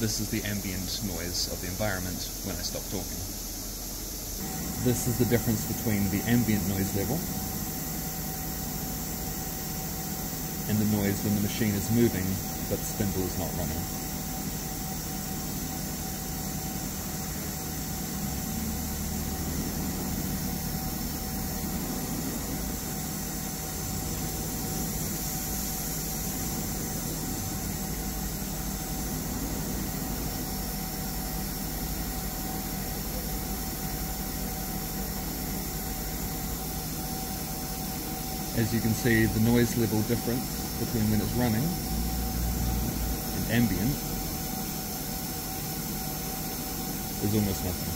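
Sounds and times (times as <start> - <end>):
machine low hum and hiss: 0.0 - 47.9.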